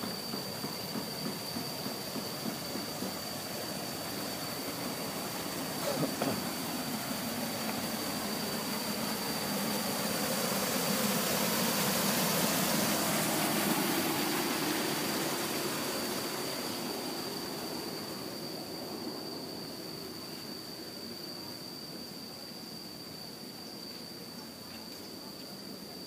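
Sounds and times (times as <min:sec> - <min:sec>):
engine running: 0:00.0 - 0:20.2
steady high-pitched whine: 0:00.0 - 0:26.0.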